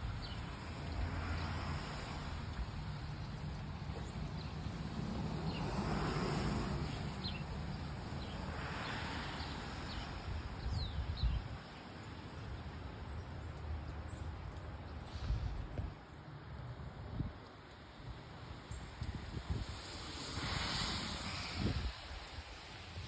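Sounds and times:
passing hiss: 0:19.5 - 0:23.0.

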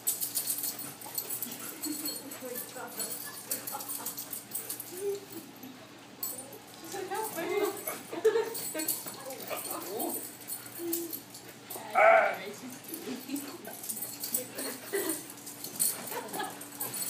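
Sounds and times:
puppy yelping: 0:11.9 - 0:12.4.

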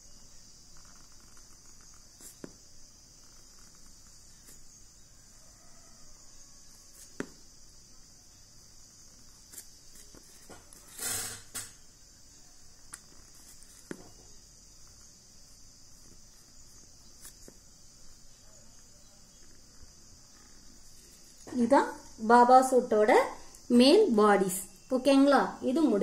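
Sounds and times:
steady high hiss: 0:00.0 - 0:26.0
pen drawing on paper: 0:00.8 - 0:04.7.

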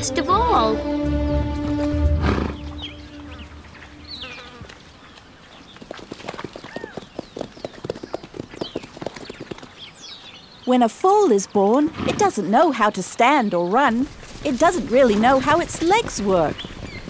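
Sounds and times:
background music: 0:00.0 - 0:04.6
horse galloping on grass: 0:01.5 - 0:10.1, 0:13.8 - 0:17.0.

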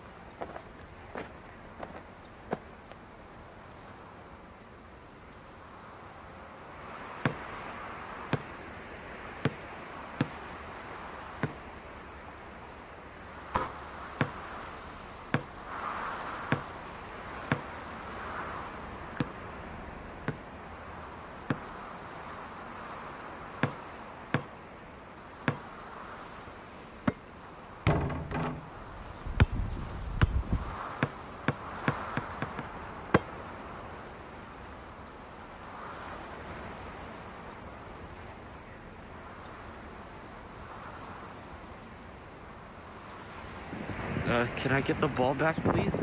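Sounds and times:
sharp knocks with low thuds: 0:11.4 - 0:11.6, 0:13.6 - 0:14.4, 0:15.3 - 0:15.5, 0:23.6 - 0:23.8, 0:27.9 - 0:33.3.

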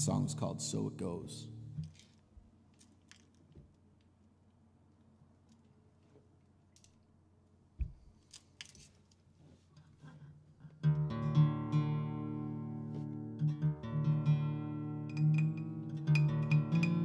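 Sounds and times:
acoustic guitar strummed: 0:10.8 - 0:17.0.

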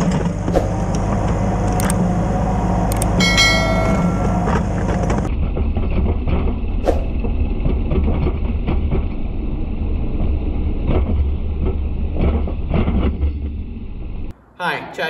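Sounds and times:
tractor diesel engine running: 0:00.0 - 0:05.3.

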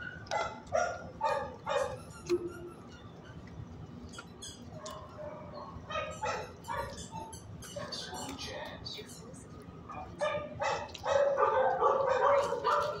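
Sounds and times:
dog barking: 0:00.0 - 0:02.1, 0:04.8 - 0:08.2, 0:10.0 - 0:13.0
soft dog calls: 0:00.0 - 0:08.4.

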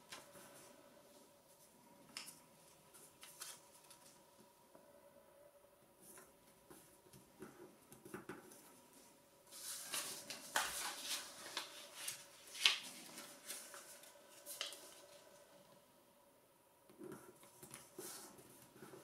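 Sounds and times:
paper rustling and crinkling: 0:02.1 - 0:04.2, 0:09.5 - 0:15.4.

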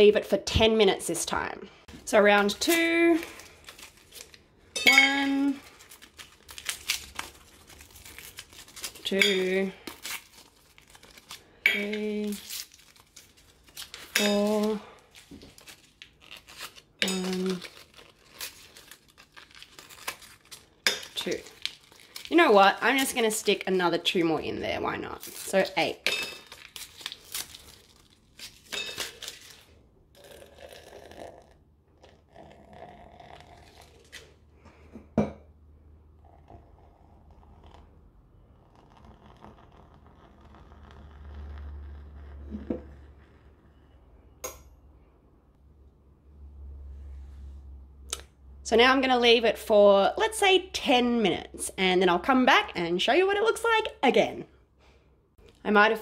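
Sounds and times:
woman's voice: 0:00.0 - 0:03.3, 0:04.9 - 0:05.6, 0:09.0 - 0:09.8, 0:11.7 - 0:12.4, 0:14.2 - 0:15.0, 0:17.0 - 0:17.6, 0:22.3 - 0:26.0, 0:48.7 - 0:54.5, 0:55.6 - 0:56.0
foil packets crinkling and tearing: 0:03.2 - 0:04.4, 0:05.6 - 0:09.1, 0:09.8 - 0:11.6, 0:12.2 - 0:23.3, 0:26.4 - 0:29.7.

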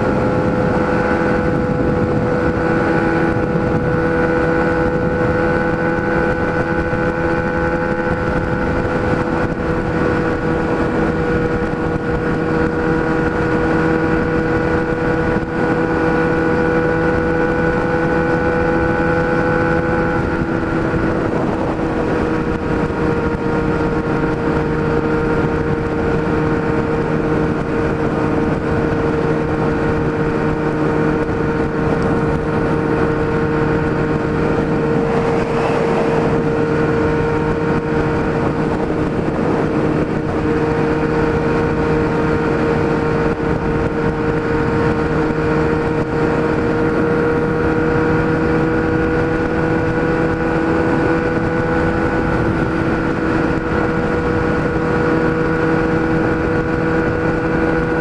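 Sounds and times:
motorcycle engine droning: 0:00.0 - 0:58.0
wind rushing over microphone: 0:00.0 - 0:58.0.

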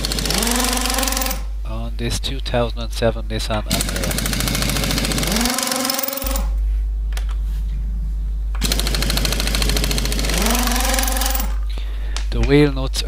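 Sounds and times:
impact wrench hammering: 0:00.0 - 0:01.4, 0:03.7 - 0:06.5, 0:08.6 - 0:11.6.

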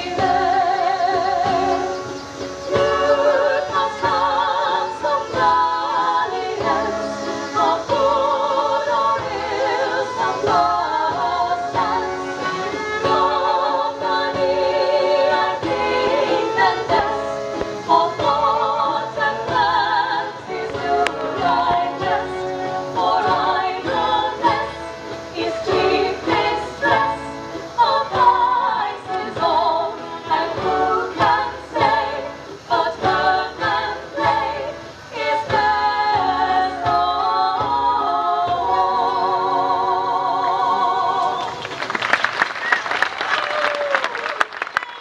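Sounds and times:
live dance music: 0:00.0 - 0:43.1
applause and cheering: 0:41.2 - 0:45.0.

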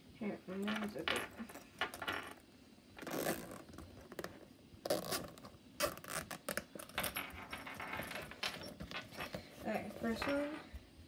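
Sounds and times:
rustling and scraping: 0:03.0 - 0:10.7.

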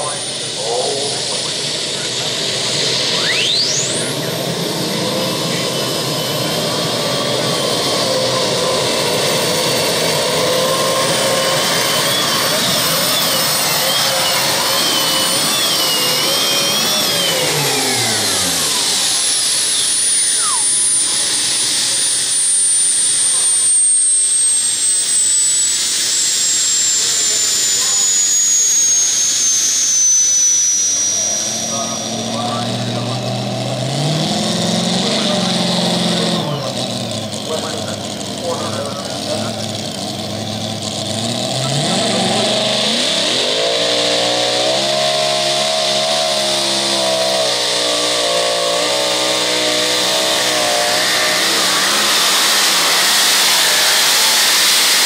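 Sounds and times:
tractor engine at full power: 0:00.0 - 0:55.0
high falling whistle: 0:02.8 - 0:04.1, 0:10.2 - 0:32.8.

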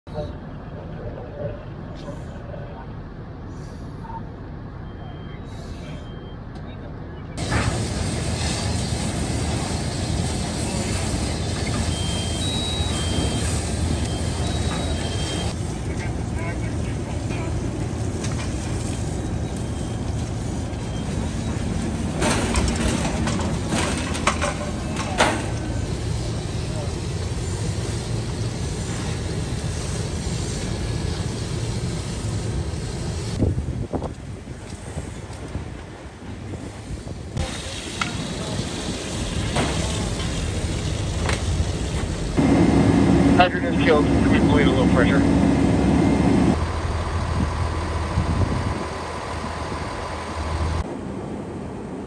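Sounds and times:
fire engines rumbling: 0:00.1 - 0:52.0
low rumble: 0:38.3 - 0:51.1.

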